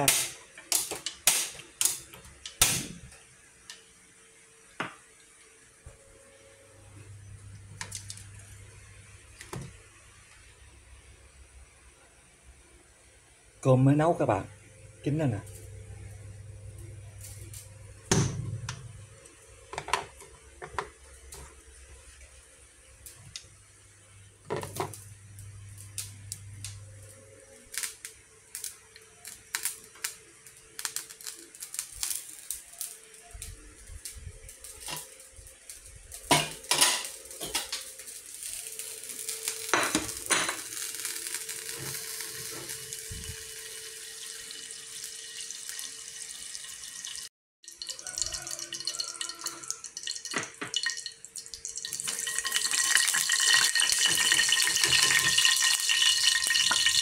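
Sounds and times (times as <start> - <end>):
faint steady hum: 0.0 - 46.9
oil hissing in frying pan: 33.9 - 47.3, 48.0 - 57.0.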